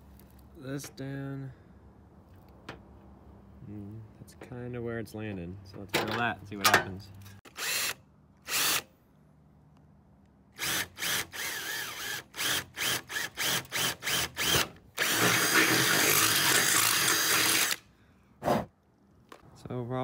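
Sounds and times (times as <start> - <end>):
cordless drill drilling metal: 7.4 - 8.9, 10.6 - 17.8.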